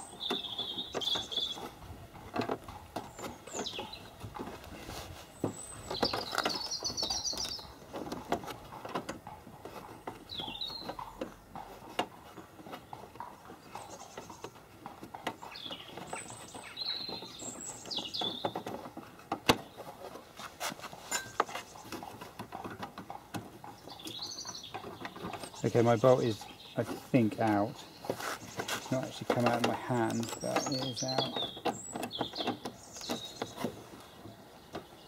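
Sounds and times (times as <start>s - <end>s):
birds chirping: 0.0s - 35.0s
soft rustling: 3.2s - 8.6s, 16.0s - 22.4s, 24.8s - 31.4s.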